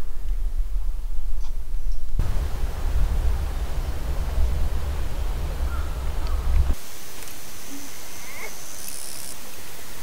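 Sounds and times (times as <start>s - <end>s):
wind buffeting microphone: 2.2s - 6.8s.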